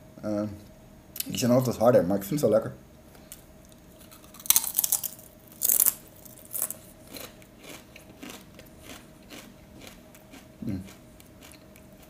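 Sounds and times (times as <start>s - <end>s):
potato crisp crunching: 4.0s - 12.0s.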